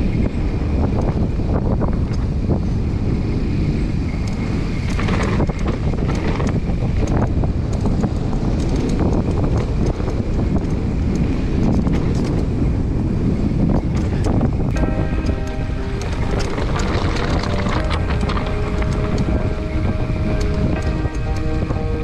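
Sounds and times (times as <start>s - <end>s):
wind rushing over microphone: 0.0s - 22.0s
bike rattling clicks and knocks: 4.1s - 12.6s, 13.6s - 21.8s.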